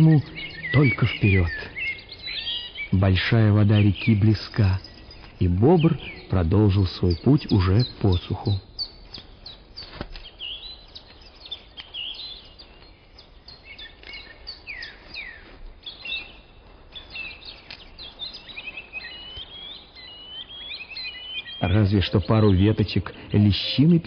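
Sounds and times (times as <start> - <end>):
bird trilling: 0.0 - 12.5
songbirds chirping and whistling: 0.0 - 24.0.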